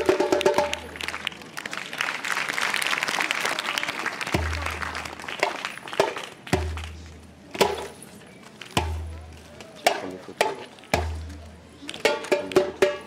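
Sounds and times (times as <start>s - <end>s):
hand drum slaps: 0.0s - 0.9s, 4.3s - 8.0s, 8.7s - 13.0s
audience applauding: 0.3s - 6.9s.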